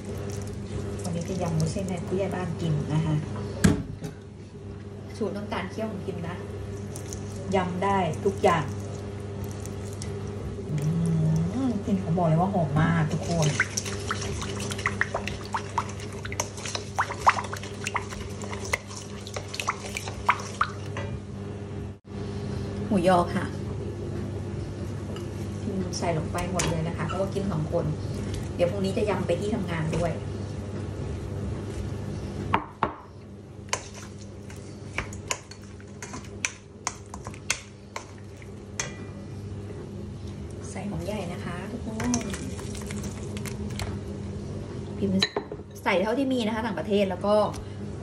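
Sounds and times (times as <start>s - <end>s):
spoon stirring liquid in bowl: 13.1s - 21.0s, 33.7s - 39.2s.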